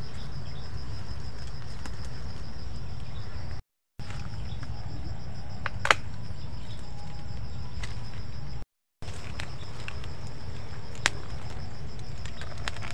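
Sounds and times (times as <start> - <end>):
constant low rumble: 0.0 - 12.9
insects trilling: 0.0 - 12.9
loud snap: 5.6 - 6.1.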